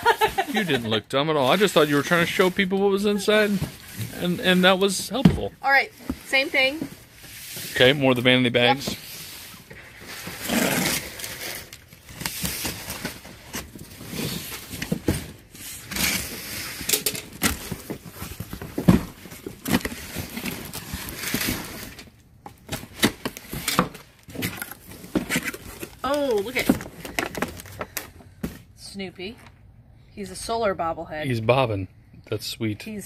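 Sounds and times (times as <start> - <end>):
tape tearing: 9.0 - 28.0.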